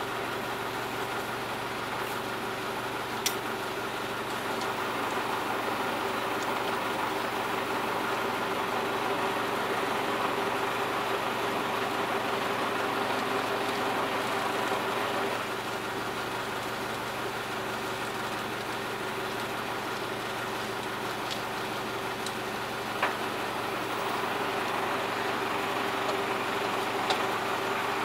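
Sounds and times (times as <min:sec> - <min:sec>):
diesel railcar engine idling: 0:00.0 - 0:28.0.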